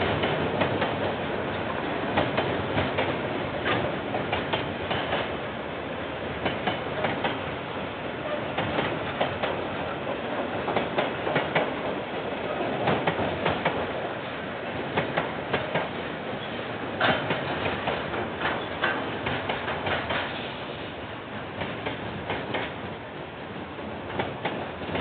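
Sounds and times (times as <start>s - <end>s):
wheels clacking on track: 0.0s - 5.4s, 6.4s - 7.5s, 8.3s - 14.0s, 14.9s - 20.6s
train rumbling past: 0.0s - 25.0s.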